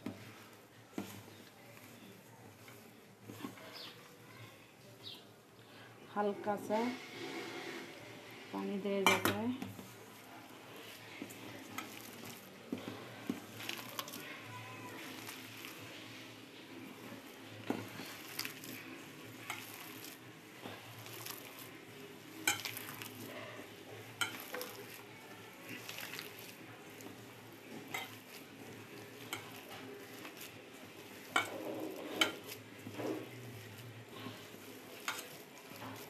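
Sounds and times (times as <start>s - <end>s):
wet dough squishing: 9.4s - 36.0s.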